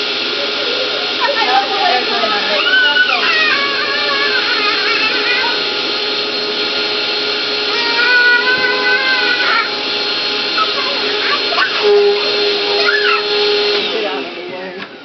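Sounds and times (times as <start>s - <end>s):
vacuum cleaner motor hum: 0.0s - 15.0s
high wavering vocal sound: 2.4s - 5.9s, 7.6s - 13.8s.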